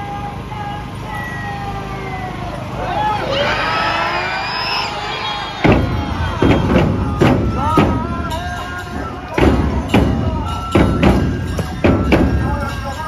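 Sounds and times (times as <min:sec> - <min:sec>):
crowd voices: 0:00.0 - 0:13.0
big drums struck: 0:05.6 - 0:12.9.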